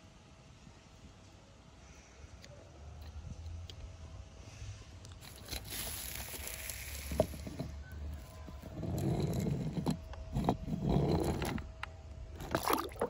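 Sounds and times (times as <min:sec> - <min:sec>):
toy tyres rolling on wood: 0:05.2 - 0:13.0.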